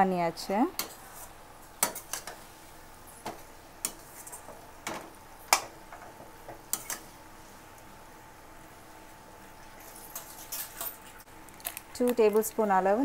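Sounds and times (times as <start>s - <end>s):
metal spatula scraping a pan: 3.8s - 4.6s, 9.9s - 11.1s.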